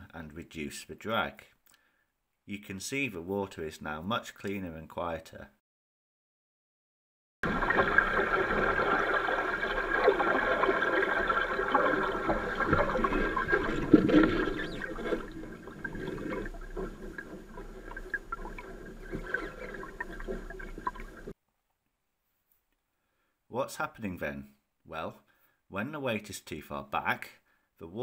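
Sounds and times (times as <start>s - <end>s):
water churning behind boat: 7.4s - 21.3s
quiet water wash: 7.4s - 21.4s
water splashes: 7.4s - 21.4s.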